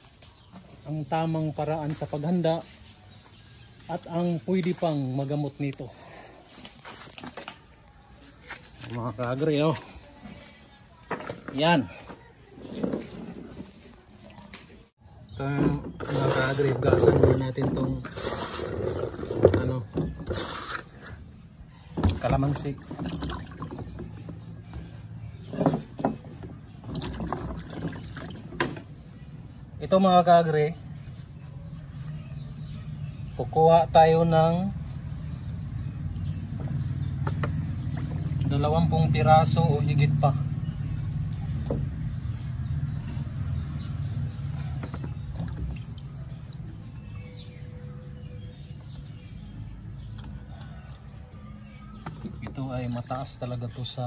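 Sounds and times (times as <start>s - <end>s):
birds chirping: 0.0s - 54.0s
water sloshing in a plastic basin: 6.6s - 29.4s, 34.3s - 54.0s
hands rubbing fruit in water: 15.5s - 21.2s.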